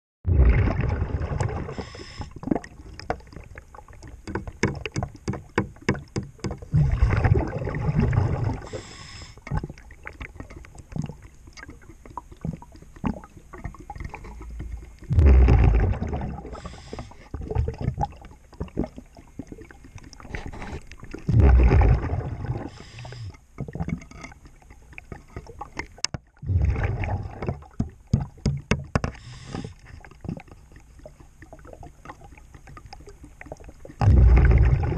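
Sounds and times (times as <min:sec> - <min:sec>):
exhaust bubbles rumbling: 0:00.2 - 0:29.8, 0:30.4 - 0:34.9
regulator breathing hiss: 0:01.8 - 0:02.4, 0:08.6 - 0:09.4, 0:16.5 - 0:17.3, 0:22.7 - 0:23.4, 0:29.2 - 0:29.8.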